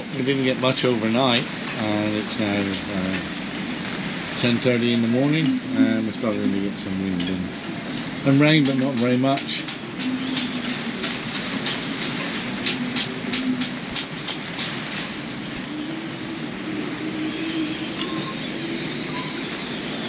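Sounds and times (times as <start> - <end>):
wind and light rain: 0.0 - 20.0
scattered ticks and taps: 7.1 - 15.6.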